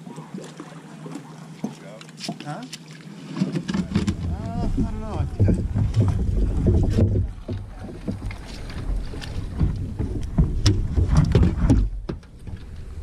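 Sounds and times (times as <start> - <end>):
wind rumbling on microphone: 3.6 - 13.0.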